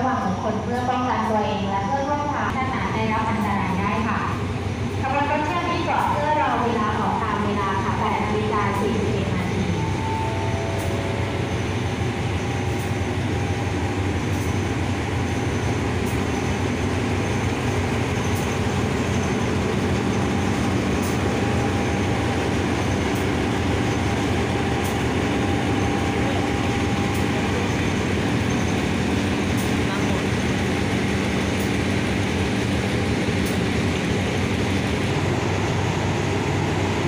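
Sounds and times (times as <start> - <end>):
diesel locomotive engine drone: 0.0 - 37.0.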